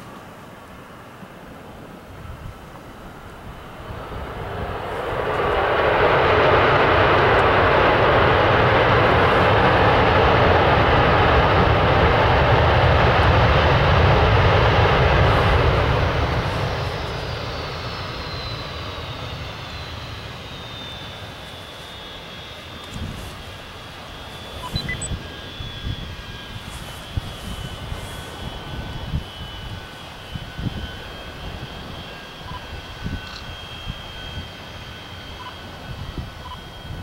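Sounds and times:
jet engines roaring: 0.0s - 37.0s
engine whine falling in pitch: 15.3s - 37.0s.

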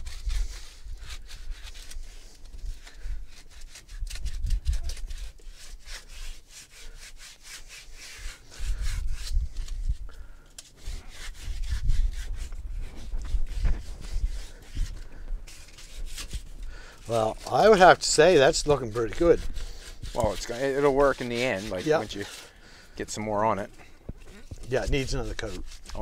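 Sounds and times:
sandpaper scratching: 0.0s - 26.0s.

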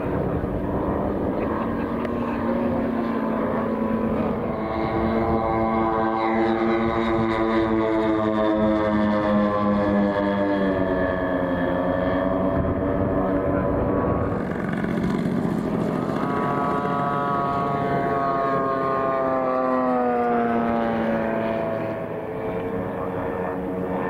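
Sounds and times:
model plane propeller engine: 0.0s - 24.0s.

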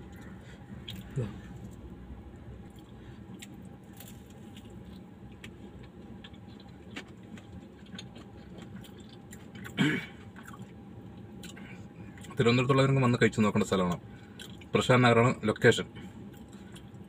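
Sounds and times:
person chewing food: 0.0s - 1.9s, 2.6s - 12.3s, 16.2s - 17.0s.

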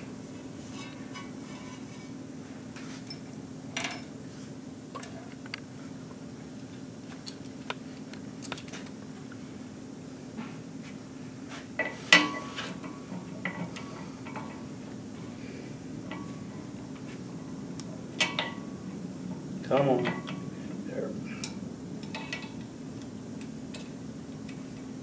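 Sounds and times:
steady low hum: 0.0s - 25.0s
metal clank: 18.2s - 18.7s.

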